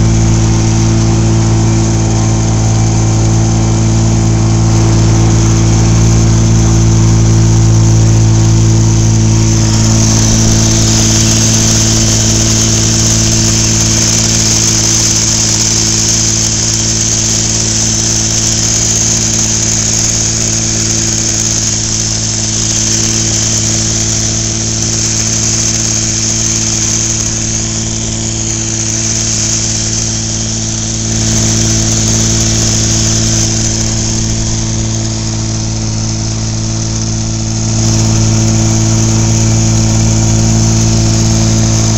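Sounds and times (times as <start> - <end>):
churned water hissing: 0.0 - 41.9
outboard motor running: 0.0 - 41.9.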